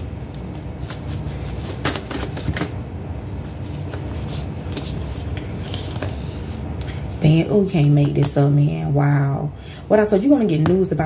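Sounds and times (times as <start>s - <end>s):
cards being shuffled: 0.3s - 6.6s.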